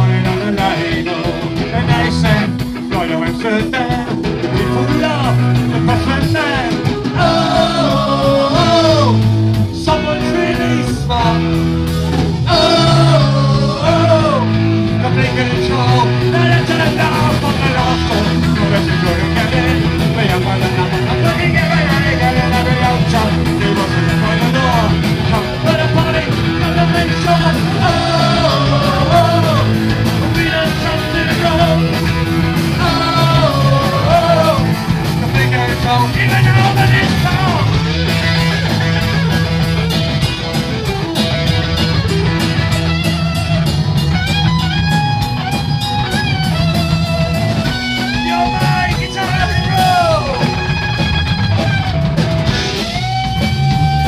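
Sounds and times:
male vocal singing: 0.0 - 9.2, 9.8 - 11.4, 12.5 - 31.9, 32.7 - 34.7, 35.4 - 37.7, 48.3 - 50.5
distorted electric guitar: 0.0 - 54.0
drum kit beat: 0.0 - 54.0
electric bass guitar: 0.0 - 54.0.

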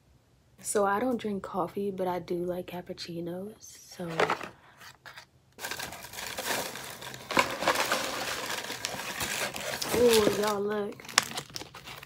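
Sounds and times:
shredded paper rustling: 4.1 - 12.0.

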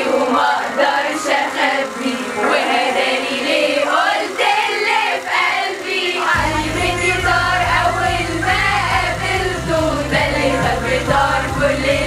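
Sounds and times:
music: 0.0 - 12.0
women singing together: 0.0 - 12.0
deep bass beat: 6.4 - 12.0.

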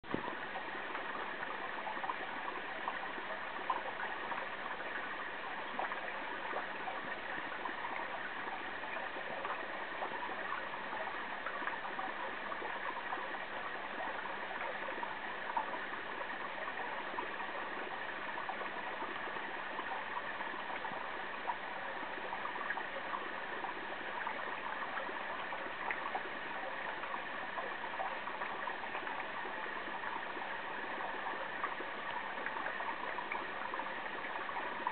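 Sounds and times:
aquarium water trickling and gurgling: 0.0 - 34.9.

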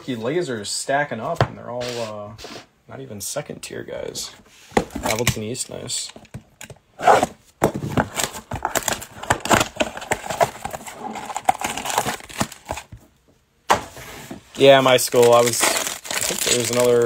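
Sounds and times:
cardboard box tearing: 8.0 - 12.9, 15.1 - 17.0
foil packs rustling: 8.0 - 13.0, 14.6 - 17.0.

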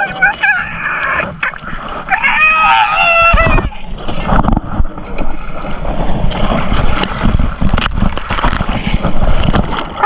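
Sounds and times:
water sloshing and splashing: 0.0 - 10.0
low rumbling wind buffeting: 2.9 - 10.0.

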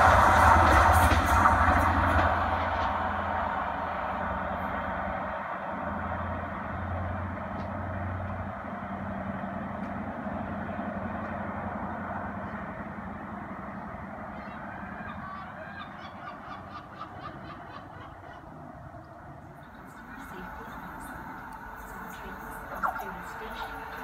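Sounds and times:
train rumbling: 0.0 - 24.0
honking bird calls: 13.7 - 18.5, 19.6 - 24.0.

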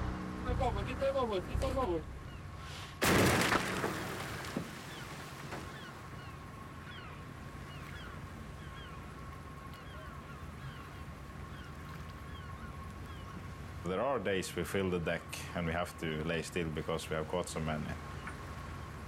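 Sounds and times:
seabirds calling: 0.0 - 19.0
harpoon cannon blast: 3.0 - 5.5.

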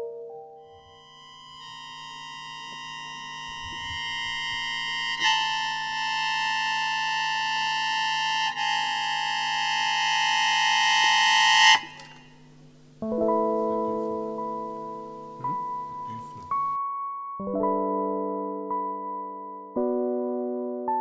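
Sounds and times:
long held instrumental note: 0.0 - 16.8.

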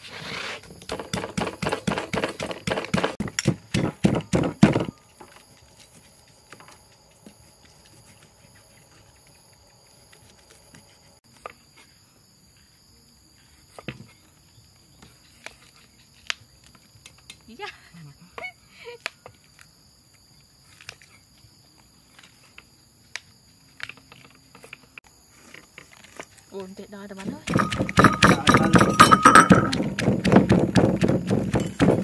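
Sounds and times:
wooden pestle pounding in mortar: 0.8 - 4.9, 27.4 - 32.0.

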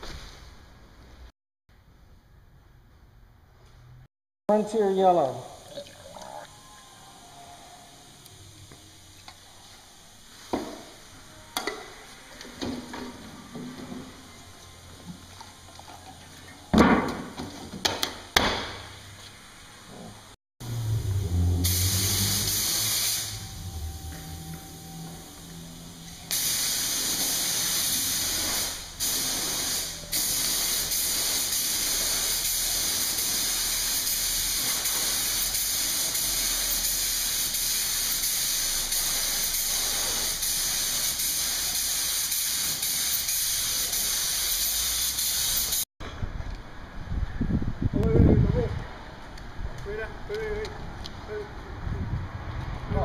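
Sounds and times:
paint spray gun hissing: 21.6 - 24.5, 25.4 - 45.8.

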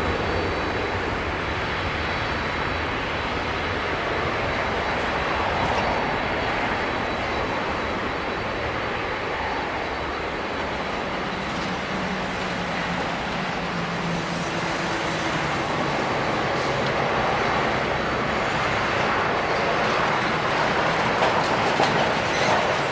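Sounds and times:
distant jet engines rushing: 0.0 - 22.9.

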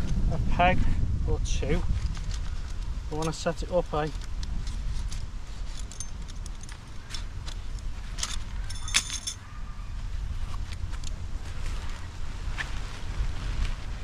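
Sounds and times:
low wind rumble on microphone: 0.0 - 14.0
metal tent pegs clinking: 2.0 - 9.6.

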